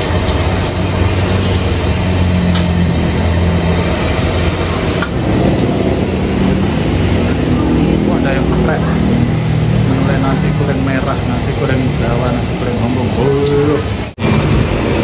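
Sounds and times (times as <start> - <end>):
food sizzling in a wok: 0.0 - 7.3
gas burner roar: 0.0 - 15.0.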